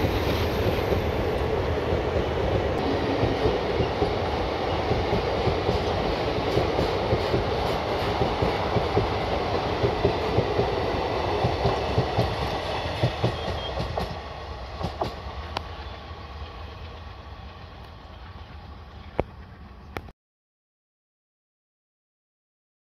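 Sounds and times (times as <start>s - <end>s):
train rumbling: 0.0s - 20.1s
train wheels clacking over rail joints: 4.8s - 14.2s, 14.8s - 15.6s.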